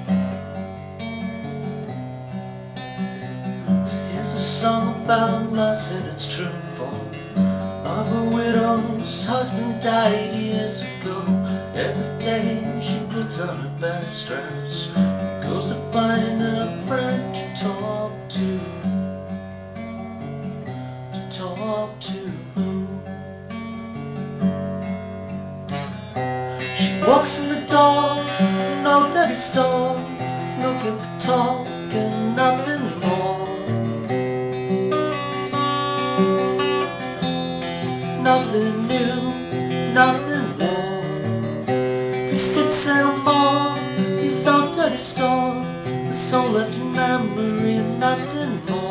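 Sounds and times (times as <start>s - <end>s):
acoustic guitar strummed and picked: 0.0s - 48.9s
man singing: 3.8s - 18.9s, 21.2s - 23.1s, 26.6s - 33.8s, 37.8s - 41.3s, 42.0s - 48.9s.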